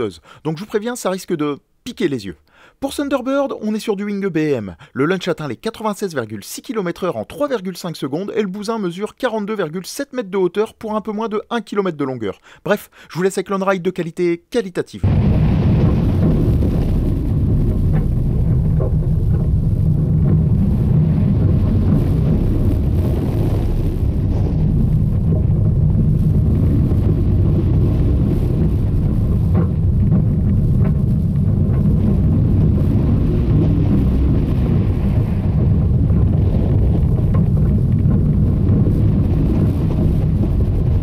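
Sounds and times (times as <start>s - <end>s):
roller coaster rumble: 15.0s - 41.0s
wind rushing over microphone: 15.0s - 41.0s.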